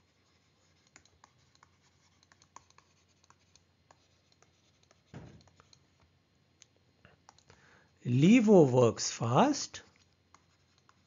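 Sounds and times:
stylus writing on tablet screen: 0:00.0 - 0:06.1, 0:08.2 - 0:11.0.

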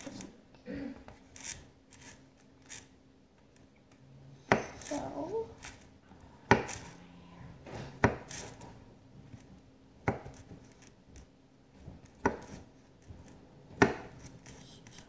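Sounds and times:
knife chopping on paper plate: 0:06.5 - 0:06.9, 0:08.0 - 0:08.6, 0:11.8 - 0:14.6.

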